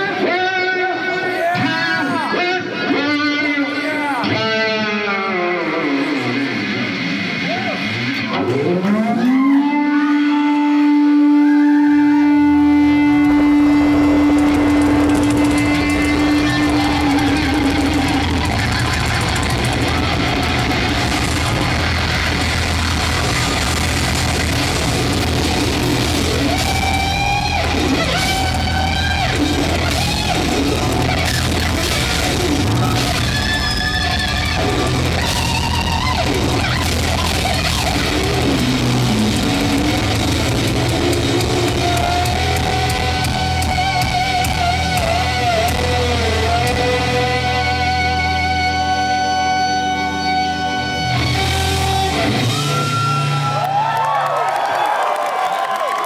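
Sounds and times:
lead electric guitar melody: 0.0 - 53.6
electric bass: 0.0 - 54.3
drum kit: 12.4 - 54.0.

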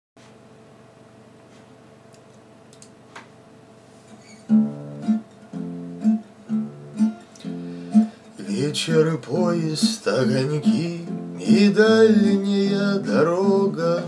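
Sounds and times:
faint steady hum: 0.2 - 14.0
acoustic guitar strumming: 4.3 - 14.0.

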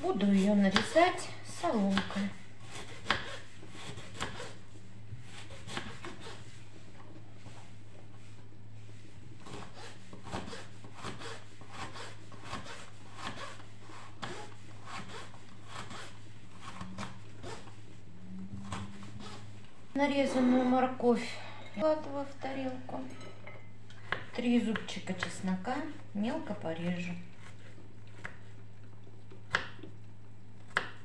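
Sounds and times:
steady low hum: 0.0 - 31.0
knife cutting carrot on board: 0.6 - 4.6, 5.3 - 6.4, 9.5 - 17.7.

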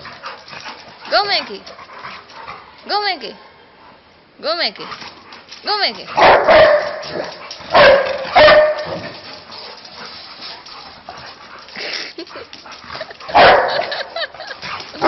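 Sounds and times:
dog barking: 6.2 - 9.2, 13.3 - 14.0.

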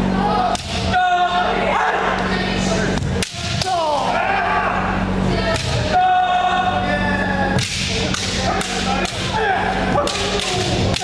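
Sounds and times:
many people shouting: 0.2 - 11.0
bamboo sticks clacking and striking armour: 7.6 - 11.0.

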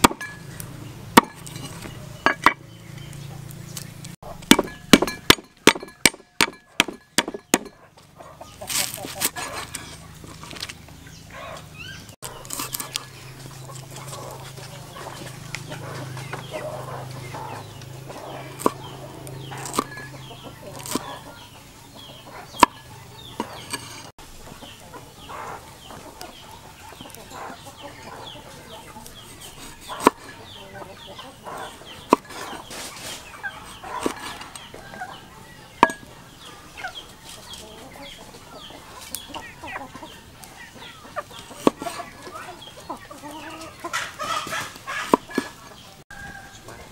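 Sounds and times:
cleaver chopping on wooden board: 0.0 - 0.4, 1.2 - 1.6, 4.3 - 7.8, 18.2 - 20.1, 20.7 - 21.2, 22.5 - 22.8, 32.0 - 32.6, 35.8 - 36.1, 41.6 - 42.0
chickens clucking: 0.0 - 46.9.

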